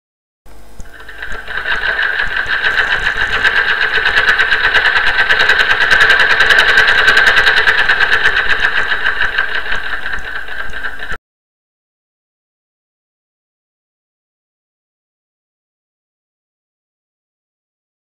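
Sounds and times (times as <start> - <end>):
sewing machine running: 0.8 - 11.2.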